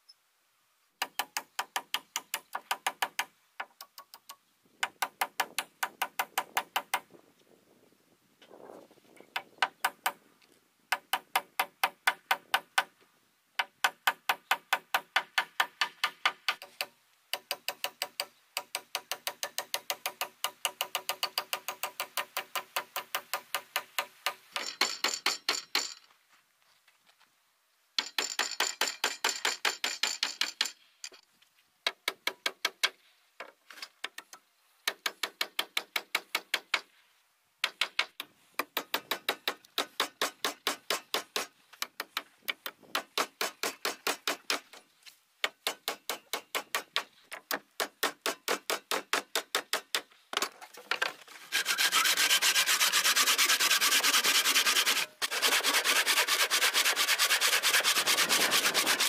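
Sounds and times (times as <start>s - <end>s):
hand saw cutting wood: 39.1s - 41.5s, 51.4s - 59.0s.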